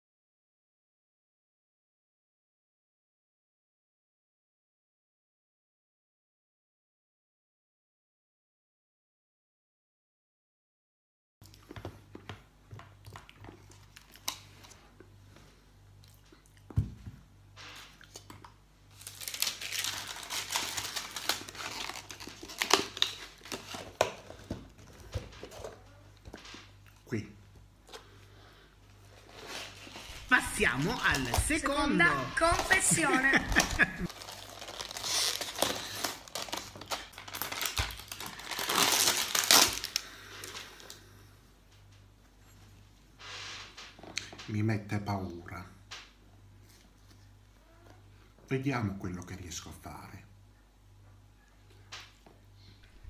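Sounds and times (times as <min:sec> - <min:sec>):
plastic packaging crinkling: 0:18.9 - 0:25.8, 0:29.1 - 0:41.0.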